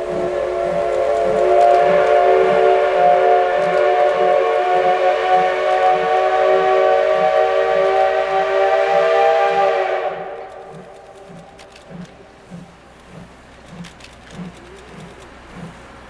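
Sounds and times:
steam whistle blast: 0.0 - 11.1
steam locomotive exhaust beat: 0.0 - 16.0.

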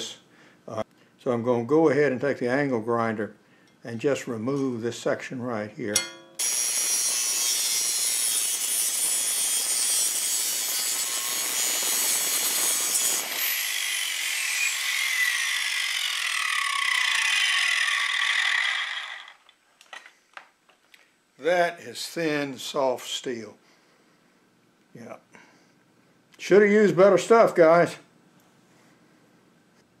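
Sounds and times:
angle grinder cutting steel: 6.0 - 19.4
grinder motor winding down: 10.5 - 19.4.

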